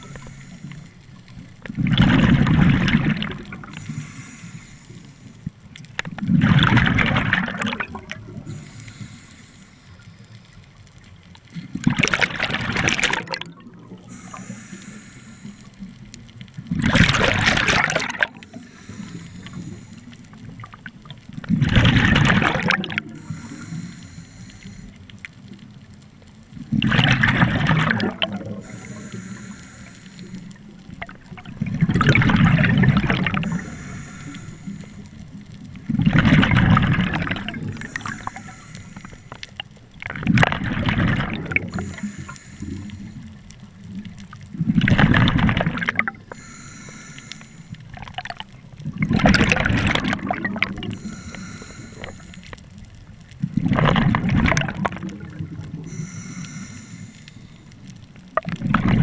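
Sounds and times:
water noise: 0.0 - 59.0
exhaled bubbles rushing: 1.6 - 3.8, 6.2 - 8.6, 11.7 - 14.4, 16.6 - 18.6, 20.4 - 23.4, 26.6 - 29.0, 30.6 - 34.5, 35.7 - 38.5, 40.0 - 42.3, 44.3 - 46.5, 47.9 - 52.3, 53.4 - 56.0, 58.3 - 59.0.

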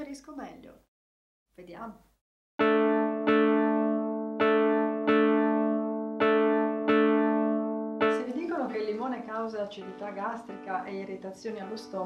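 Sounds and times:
bright keyboard chord jingle: 2.6 - 12.0.

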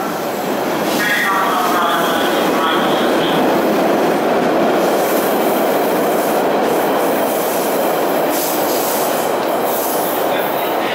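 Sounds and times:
subway train wheels rumbling: 0.0 - 10.9.

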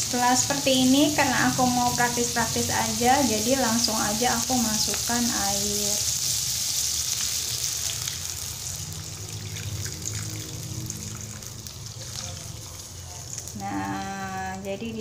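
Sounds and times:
oil sizzling in wok: 0.0 - 15.0
water pouring from jug: 9.4 - 12.6.

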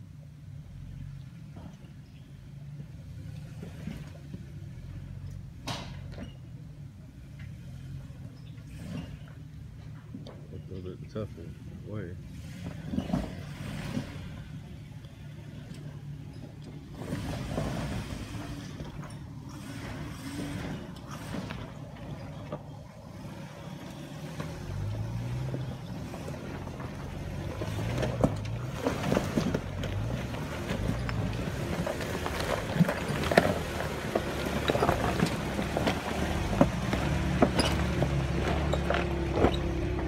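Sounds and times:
off-road engines at low revs: 0.0 - 40.0
stones cracking under tyres: 16.4 - 40.0.

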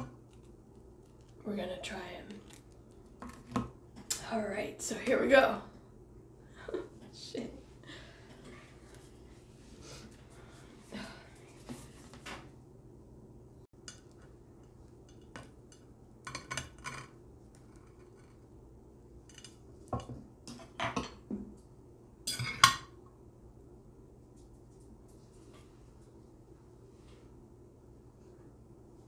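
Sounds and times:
dishes clinking and knocking: 19.3 - 21.6, 22.3 - 23.0.

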